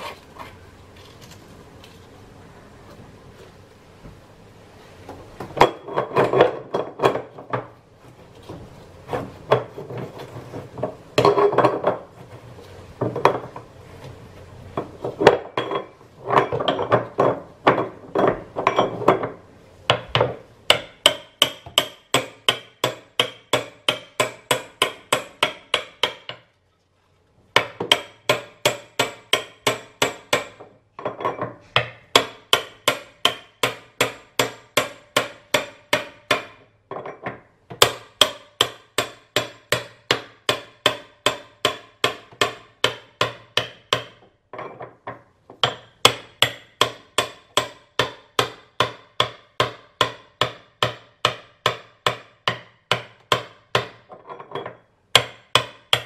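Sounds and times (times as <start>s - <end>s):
hammer tapping on metal part: 45.1s - 56.0s.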